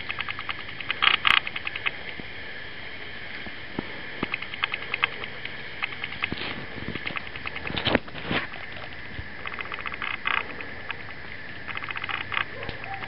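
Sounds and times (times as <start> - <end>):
rapid high-pitched clicking calls: 0.0 - 2.0, 4.2 - 13.0
rustling scrapes: 6.2 - 10.6.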